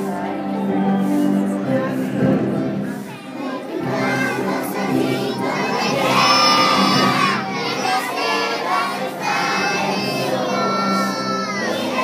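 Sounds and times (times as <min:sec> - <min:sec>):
children shouting together: 0:03.2 - 0:12.0.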